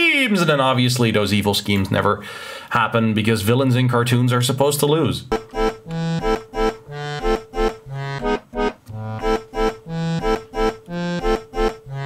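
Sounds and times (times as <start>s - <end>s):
accordion and bass polka: 5.3s - 12.0s.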